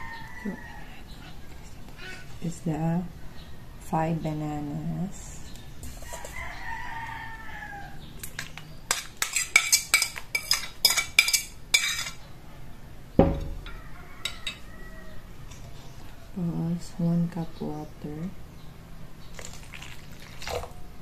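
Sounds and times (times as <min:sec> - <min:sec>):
rooster crowing: 0:00.0 - 0:01.1, 0:06.0 - 0:08.1, 0:13.4 - 0:15.5
plate thumping on table: 0:13.2 - 0:13.7.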